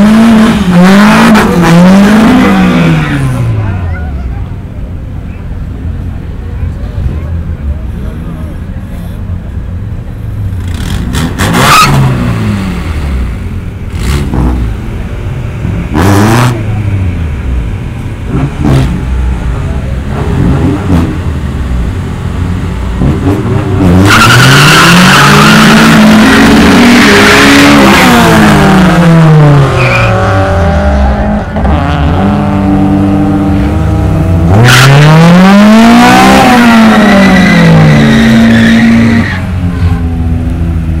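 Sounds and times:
car engines launching: 0.0s - 41.0s
tire squeal: 23.9s - 28.5s, 29.6s - 32.2s, 36.0s - 40.1s.

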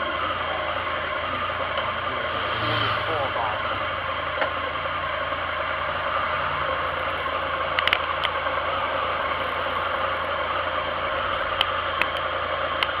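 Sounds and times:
motorcycle engine idling: 0.0s - 13.0s
sharp clicks: 11.6s - 13.0s.

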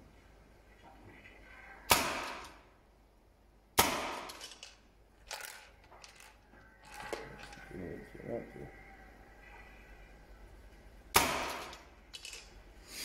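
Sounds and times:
paintball marker firing: 1.9s - 2.6s, 3.8s - 4.4s, 11.2s - 11.8s.

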